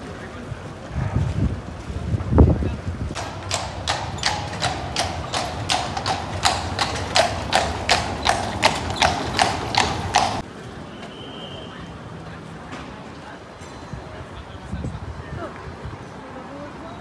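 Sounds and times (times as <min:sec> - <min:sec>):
horse hooves clip-clopping on cobblestones: 0:03.1 - 0:10.8.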